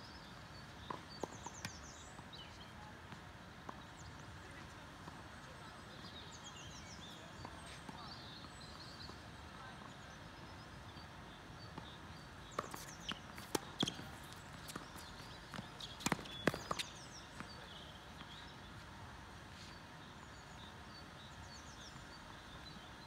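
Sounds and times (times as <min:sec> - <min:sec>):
outdoor background noise: 0:00.0 - 0:23.0
tennis ball bouncing: 0:10.9 - 0:18.4
racket hitting tennis ball: 0:12.5 - 0:16.9.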